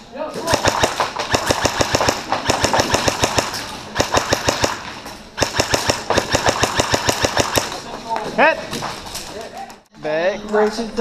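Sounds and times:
airsoft gun rapid firing: 0.4s - 7.8s.

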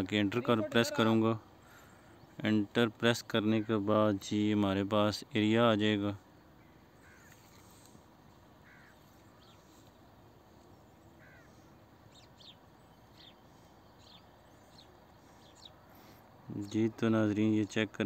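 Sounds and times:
faint room hiss: 0.0s - 18.0s
faint bird chirps: 5.1s - 17.8s.

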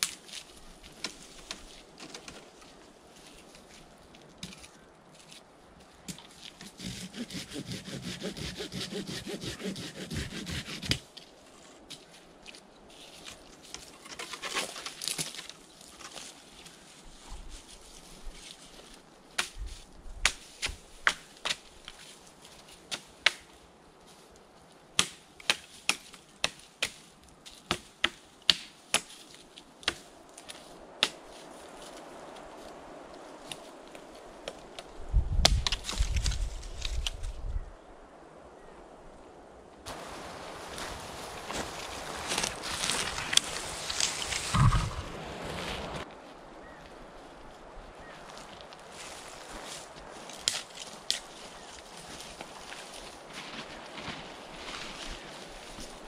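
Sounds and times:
loud low rustling rumble: 44.3s - 46.0s.

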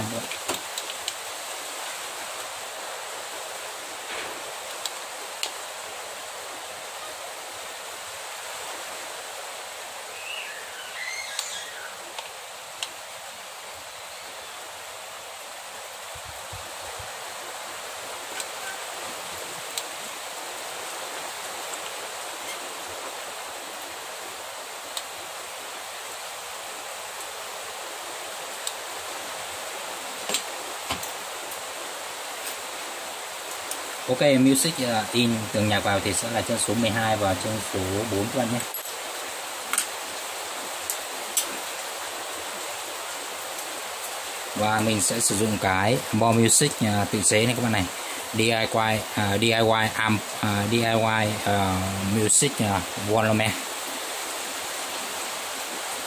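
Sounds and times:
background hiss: 0.0s - 56.0s.

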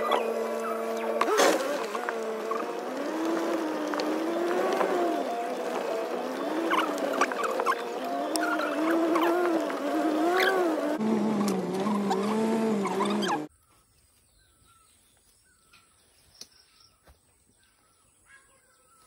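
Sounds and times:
vehicle engine running: 0.0s - 13.5s.

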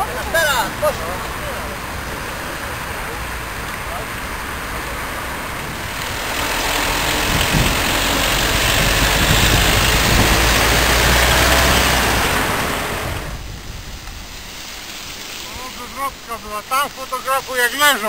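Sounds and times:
road noise: 0.0s - 18.0s
wind rushing over microphone: 4.3s - 16.5s.

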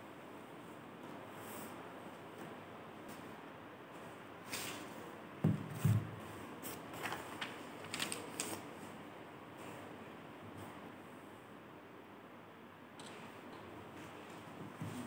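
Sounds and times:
paper rustling: 6.6s - 8.8s.

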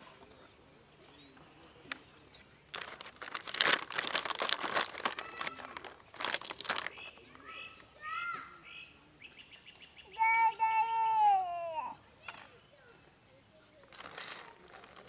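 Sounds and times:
plastic packaging crinkling: 2.7s - 7.2s, 13.8s - 15.0s.

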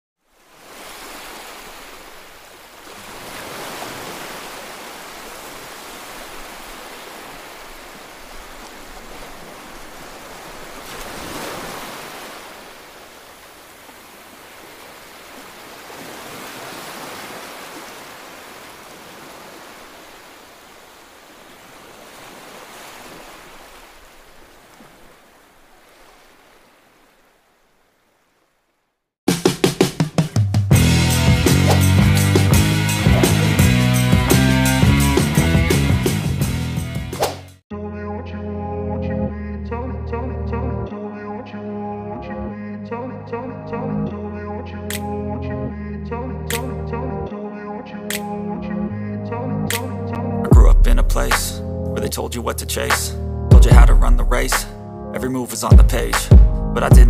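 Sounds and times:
ocean waves breaking on beach: 0.2s - 28.2s.

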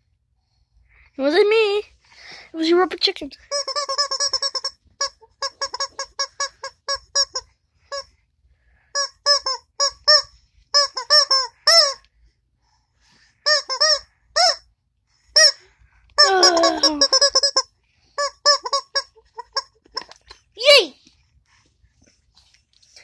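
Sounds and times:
rubber chicken toy squeaking: 3.5s - 8.1s, 8.9s - 12.0s, 13.4s - 14.7s, 15.3s - 15.6s, 16.2s - 20.3s.

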